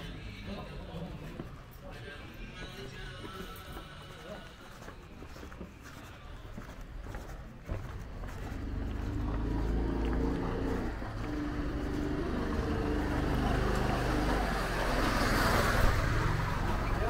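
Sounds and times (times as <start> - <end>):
vehicle engine droning: 7.7 - 17.0.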